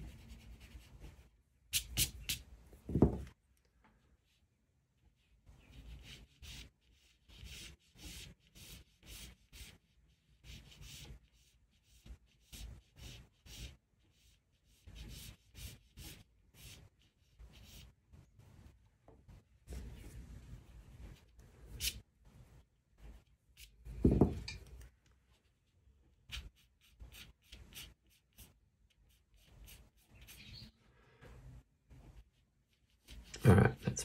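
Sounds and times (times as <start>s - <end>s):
pencil sketching on paper: 0.0s - 1.3s, 5.2s - 18.8s, 26.3s - 30.5s, 31.9s - 33.5s.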